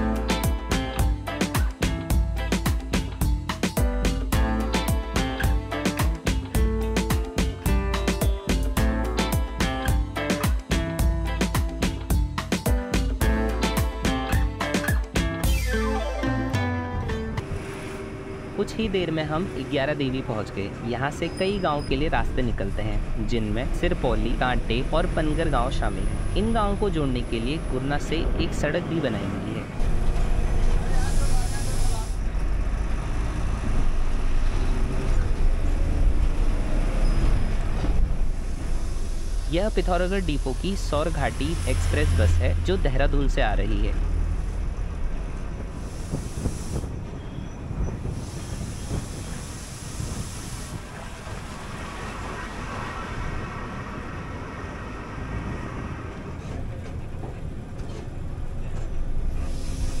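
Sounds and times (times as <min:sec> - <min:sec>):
bus engine and road rumble: 0:16.3 - 1:00.0.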